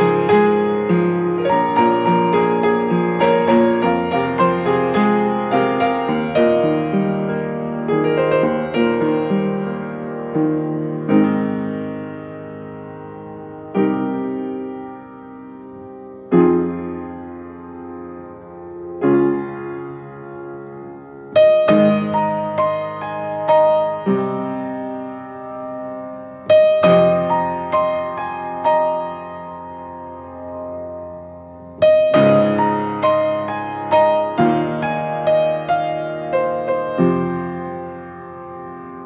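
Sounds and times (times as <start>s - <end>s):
piano music: 0.0s - 39.0s.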